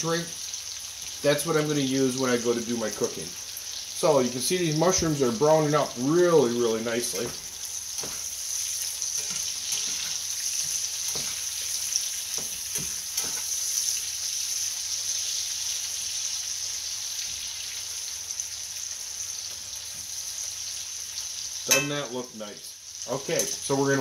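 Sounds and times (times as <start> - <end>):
mushrooms sizzling in a pan: 0.0 - 24.0
spatula knocking: 9.2 - 11.5, 12.3 - 13.4.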